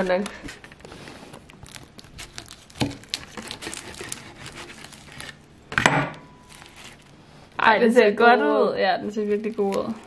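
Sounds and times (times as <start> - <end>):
knife cutting crunchy pastry: 1.0 - 5.5, 6.4 - 7.2.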